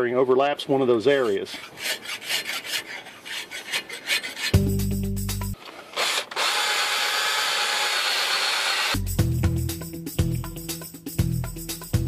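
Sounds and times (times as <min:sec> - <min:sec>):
hand tool scraping rusted steel: 0:01.0 - 0:04.8
drill wire brush grinding rust: 0:01.1 - 0:04.8, 0:05.6 - 0:09.0
music: 0:04.6 - 0:05.6, 0:09.0 - 0:12.0.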